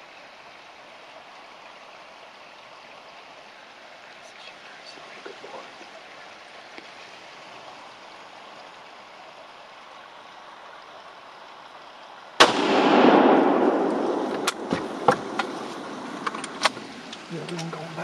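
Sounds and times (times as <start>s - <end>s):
faint outdoor hiss: 0.0s - 18.0s
rifle shot echoing: 12.4s - 16.0s.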